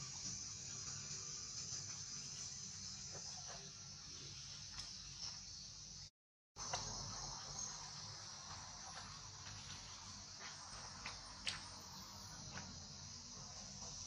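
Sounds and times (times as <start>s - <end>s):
faint high-pitched insect chorus: 0.0s - 14.0s.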